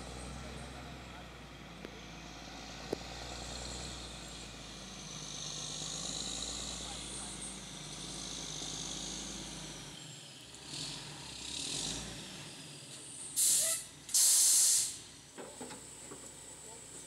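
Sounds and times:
truck engine rumble: 0.0s - 17.0s
air brakes hissing: 13.4s - 15.1s.

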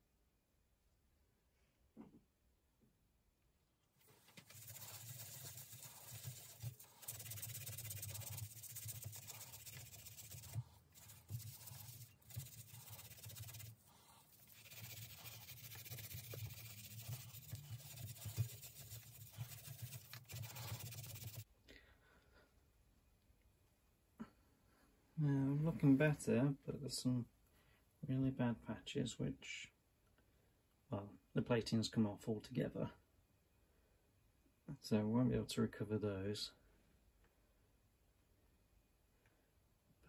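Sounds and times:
scrubbing rust off metal rim: 4.2s - 21.4s.

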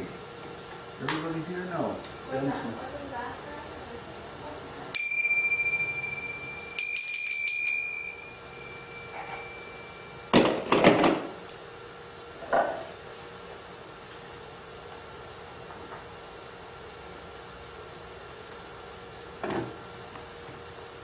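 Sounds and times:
small bell ringing: 4.9s - 11.0s.

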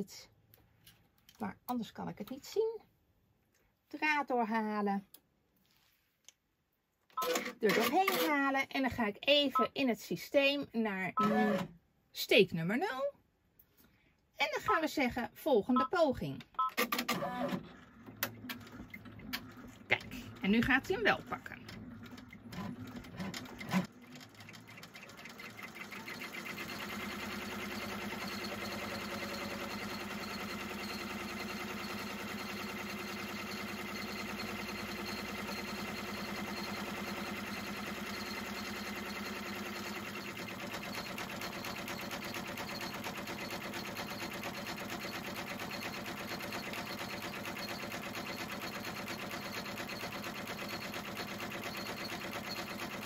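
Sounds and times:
embroidery machine stitching: 7.2s - 8.4s, 16.7s - 53.0s.

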